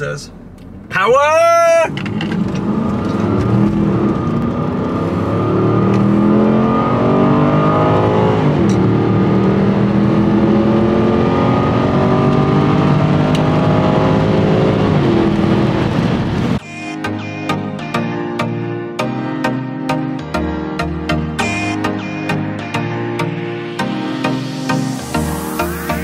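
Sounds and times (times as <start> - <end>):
car engine accelerating: 1.9 - 16.6.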